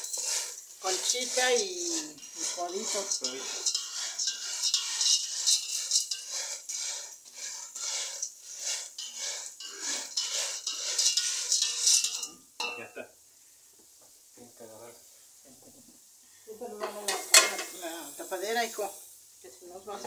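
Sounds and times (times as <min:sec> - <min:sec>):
spatula scraping pasta in pot: 0:00.0 - 0:12.4.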